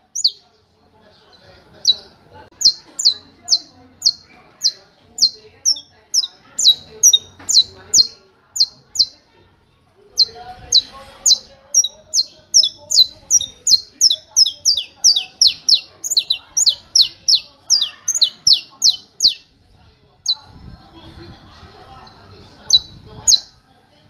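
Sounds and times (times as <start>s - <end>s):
finch singing high sharp notes: 0.1s - 0.4s, 2.6s - 9.2s, 10.2s - 19.5s.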